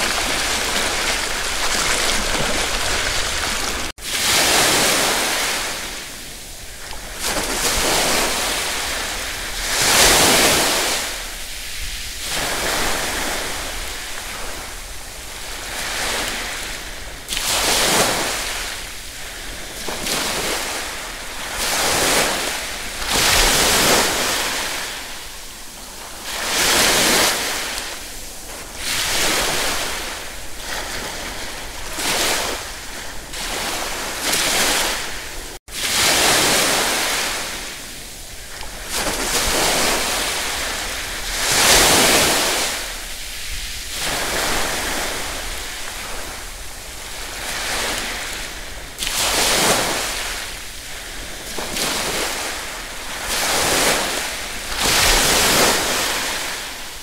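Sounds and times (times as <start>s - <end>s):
ocean waves washing in: 0.0s - 57.0s.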